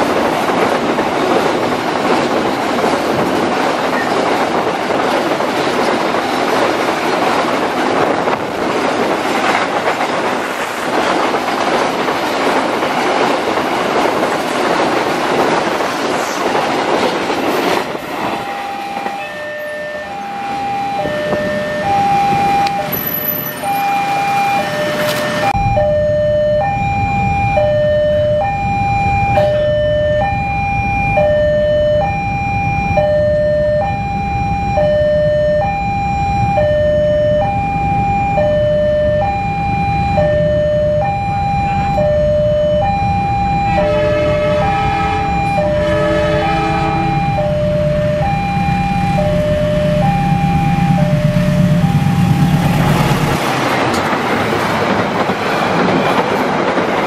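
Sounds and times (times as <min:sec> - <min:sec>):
diesel locomotive rumble: 0:00.0 - 0:57.0
freight train rolling past: 0:00.0 - 0:57.0.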